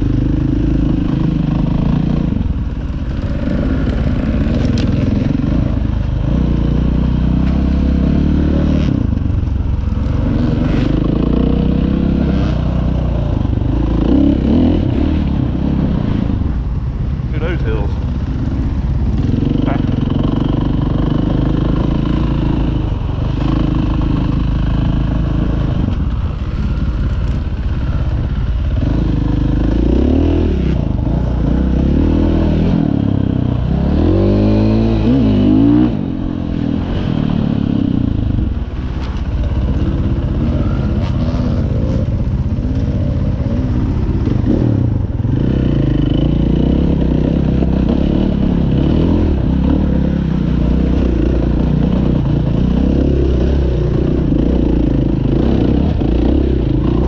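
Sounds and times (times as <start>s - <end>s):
dirt bike engine revving: 0.0s - 16.6s, 17.3s - 57.0s.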